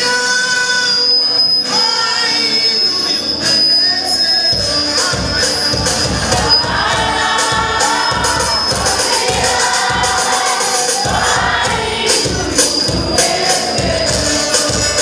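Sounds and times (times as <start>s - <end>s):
acoustic guitar: 0.0s - 15.0s
group singing: 4.4s - 15.0s.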